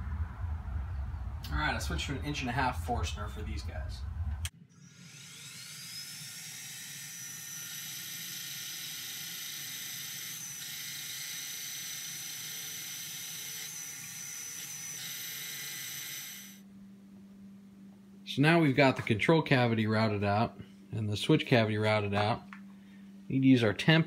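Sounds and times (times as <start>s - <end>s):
mill motor whining: 4.4s - 16.6s
drill bit boring into wood: 4.8s - 16.6s.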